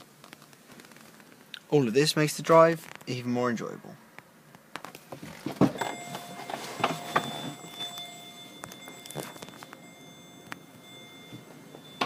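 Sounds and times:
faint steady high tone: 5.7 - 12.0.

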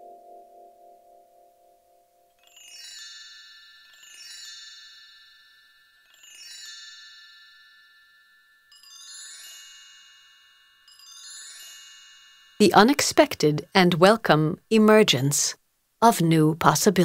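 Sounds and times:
shimmering chime cascades: 2.4 - 12.6.

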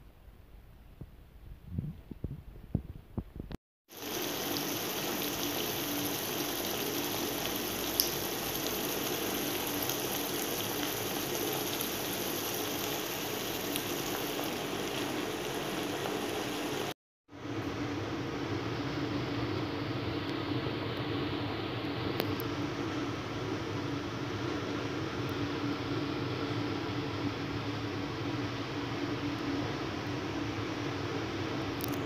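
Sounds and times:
sauce bubbling and sizzling: 3.9 - 17.0.

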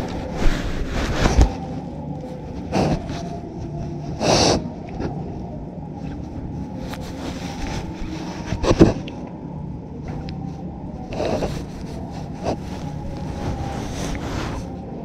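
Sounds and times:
fur rustling on camera: 0.0 - 4.6, 6.2 - 9.0, 11.0 - 15.0
steady low rumble: 0.0 - 15.0.

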